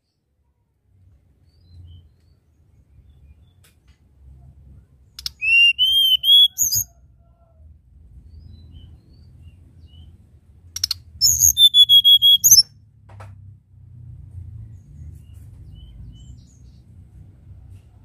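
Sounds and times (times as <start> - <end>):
bird singing whistled notes: 5.2 - 7.0, 10.8 - 12.7.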